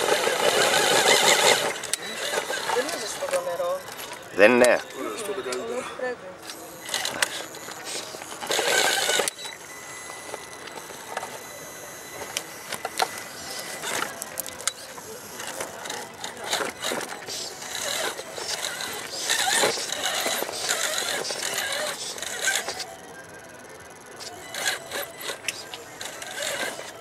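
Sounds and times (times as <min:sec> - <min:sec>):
thin motor whine: 0:00.0 - 0:27.0.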